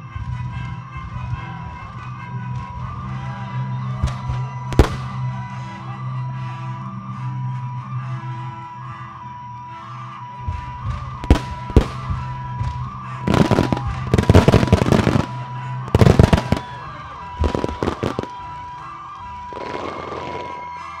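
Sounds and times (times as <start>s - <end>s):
music: 0.0s - 21.0s
fireworks crackle: 4.0s - 5.3s, 11.2s - 18.6s, 19.4s - 20.7s
fireworks bursting: 4.0s - 5.4s, 11.2s - 18.7s, 19.4s - 20.6s.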